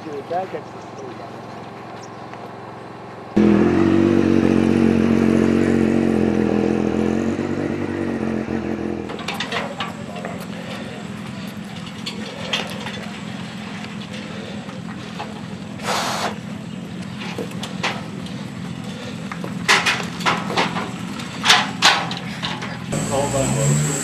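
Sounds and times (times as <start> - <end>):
engine idling hum: 0.0 - 24.0
motorcycle knocks and clunks: 19.4 - 22.8.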